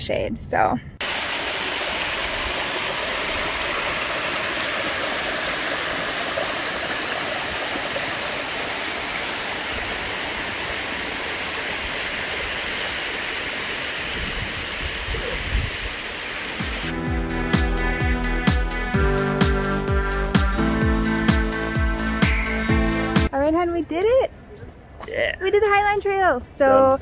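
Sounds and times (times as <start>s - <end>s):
stream cascading over rocks: 1.0s - 16.9s.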